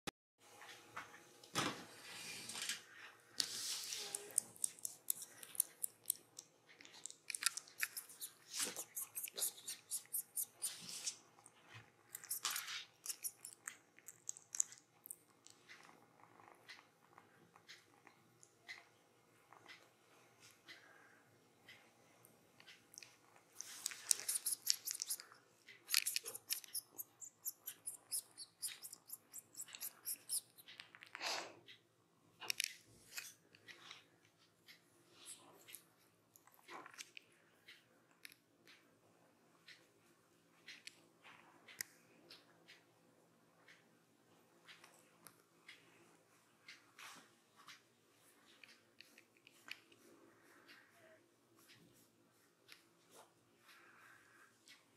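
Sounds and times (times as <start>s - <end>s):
kitten biting and clawing: 3.4s - 18.0s, 23.0s - 31.4s.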